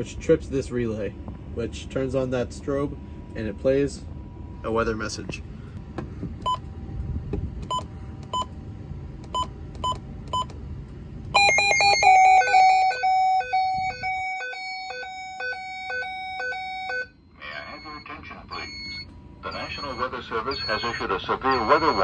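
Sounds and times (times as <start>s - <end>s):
short key beeps: 6.4s - 6.6s, 9.3s - 10.6s, 17.7s - 22.0s
electronic alarm tones: 11.4s - 22.0s.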